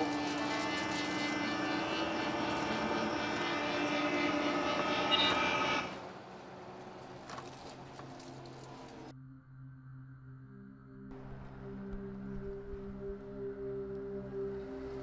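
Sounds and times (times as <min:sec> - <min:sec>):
bus engine hum: 0:00.0 - 0:09.1.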